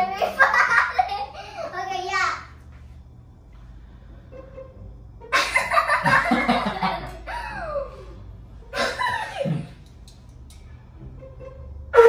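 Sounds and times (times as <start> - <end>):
loud breathy laughter: 5.3 - 9.8.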